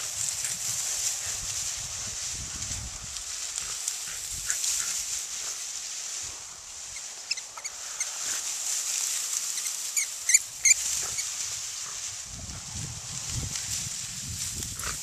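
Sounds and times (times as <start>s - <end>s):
dry grass rustling: 0.0s - 15.0s
short high-pitched squeaks: 9.5s - 11.3s.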